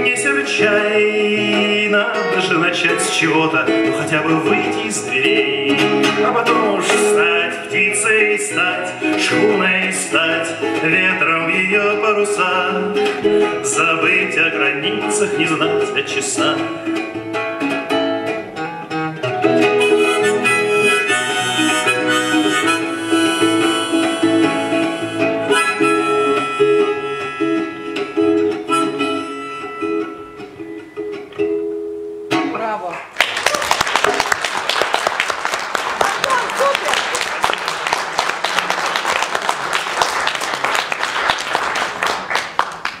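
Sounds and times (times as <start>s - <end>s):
harmonica melody: 0.0s - 32.4s
acoustic guitar strumming: 0.0s - 32.9s
audience applauding: 32.9s - 43.0s.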